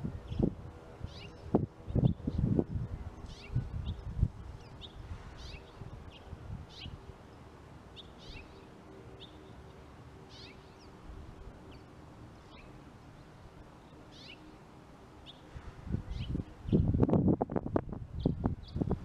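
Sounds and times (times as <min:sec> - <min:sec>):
small birds chirping harshly: 0:03.2 - 0:11.0, 0:11.6 - 0:14.6, 0:15.2 - 0:17.0.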